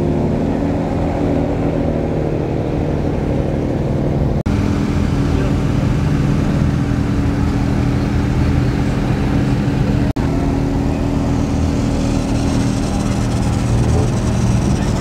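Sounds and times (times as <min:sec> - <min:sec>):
car engine idling: 0:03.5 - 0:15.0.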